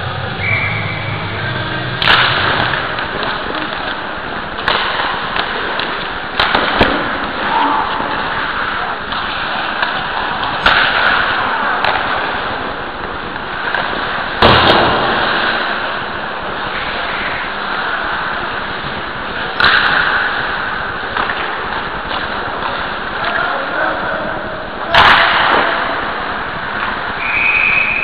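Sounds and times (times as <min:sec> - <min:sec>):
ice skating: 0:00.0 - 0:28.0
hockey sticks cracking on puck: 0:01.9 - 0:24.1, 0:24.7 - 0:28.0.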